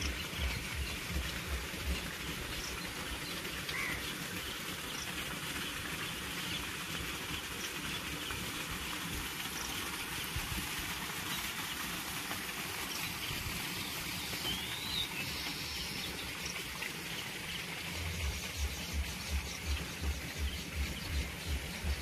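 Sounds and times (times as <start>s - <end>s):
bird chirp: 0.0s - 6.7s, 12.9s - 22.0s
low thumping beat: 18.0s - 22.0s.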